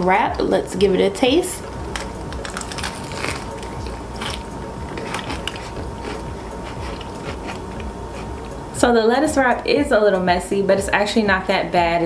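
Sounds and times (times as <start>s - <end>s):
crunchy chewing of lettuce: 1.9s - 8.5s.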